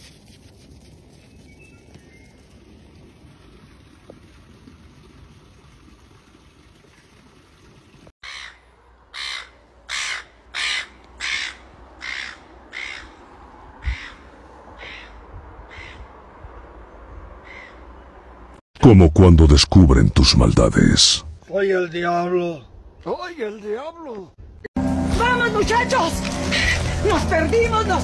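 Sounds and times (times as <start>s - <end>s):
crow cawing: 8.2s - 16.1s, 17.4s - 17.9s.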